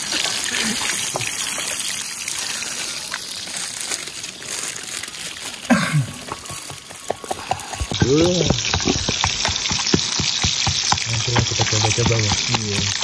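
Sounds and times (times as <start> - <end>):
crinkling and rustling: 3.1 - 10.1.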